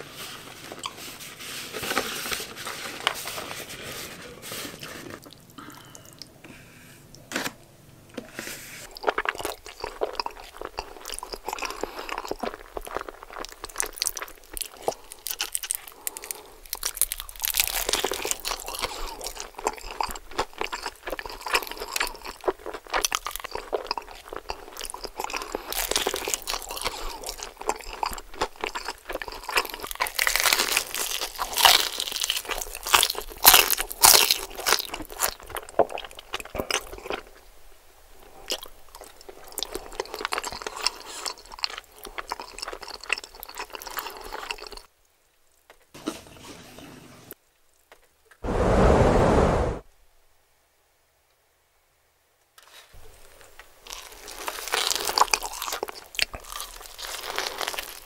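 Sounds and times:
chewing crispy fried chicken: 0:08.8 - 0:37.6, 0:38.2 - 0:44.9, 0:52.6 - 0:58.0.

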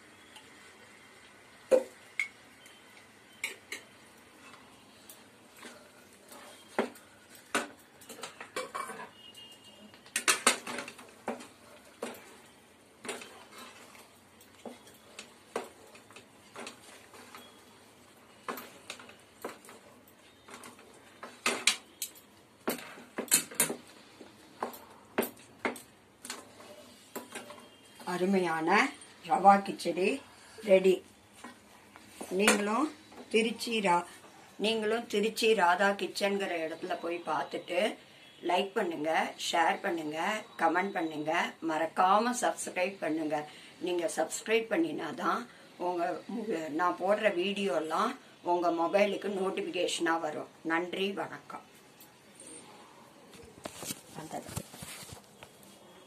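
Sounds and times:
metal spatula scraping a pan: 0:05.6 - 0:06.8, 0:13.0 - 0:15.9.

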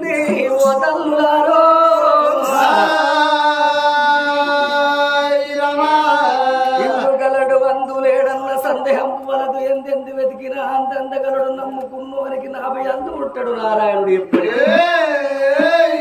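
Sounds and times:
person chanting sung phrase: 0:00.0 - 0:09.9.

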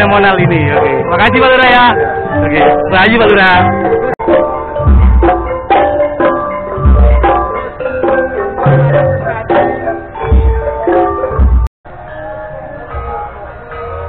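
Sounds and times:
deep drum strokes: 0:02.4 - 0:07.7, 0:10.2 - 0:11.7.

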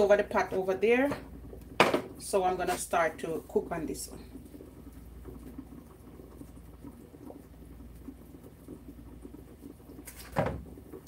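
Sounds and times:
knock against plastic bowl: 0:01.8 - 0:02.1.

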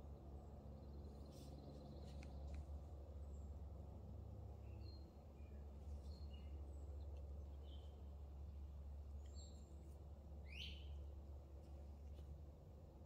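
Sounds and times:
bird chirps: 0:10.4 - 0:10.9.

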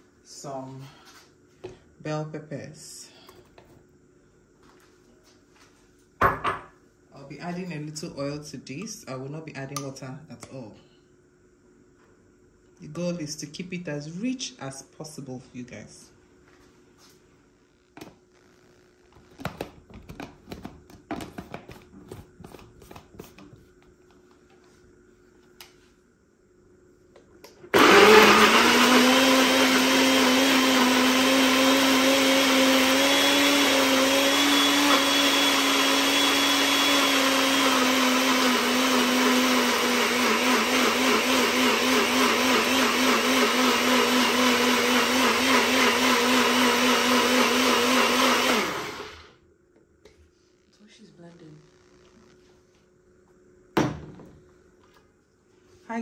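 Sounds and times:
blender motor whining: 0:27.7 - 0:49.4.

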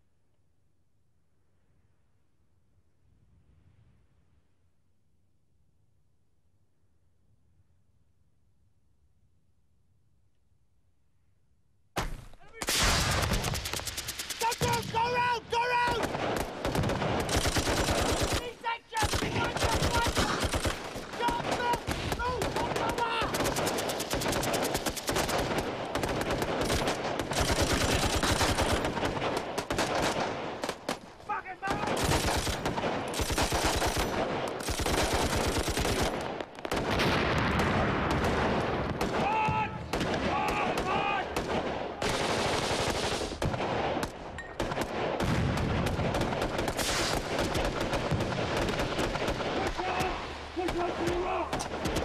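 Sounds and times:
machine-gun and small-arms fire: 0:12.0 - 0:52.0
automatic gunfire: 0:12.6 - 0:14.9, 0:15.9 - 0:31.0, 0:31.6 - 0:52.0.

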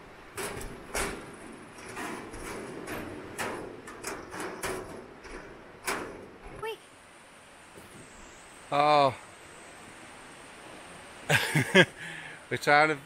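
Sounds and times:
footsteps on steel grating: 0:00.3 - 0:06.6.

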